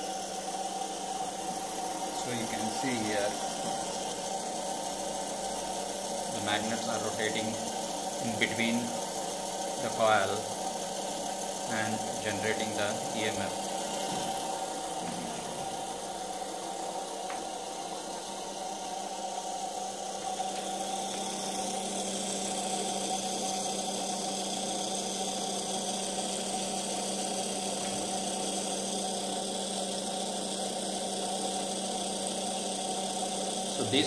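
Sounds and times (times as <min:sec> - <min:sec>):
small motor whirring: 0:00.0 - 0:34.0.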